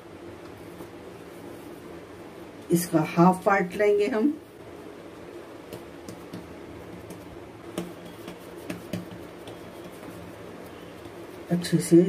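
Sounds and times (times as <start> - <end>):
steady low hum: 0.0 - 12.0
hands tapping dough on marble: 5.6 - 10.2.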